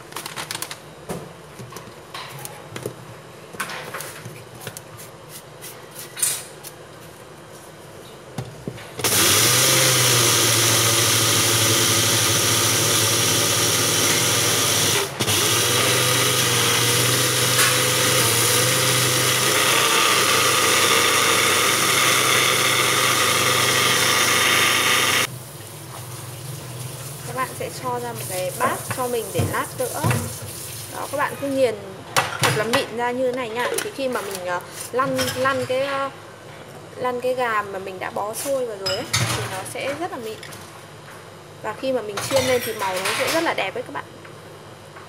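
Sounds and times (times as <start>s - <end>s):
electric blender motor grinding: 9.0s - 25.3s.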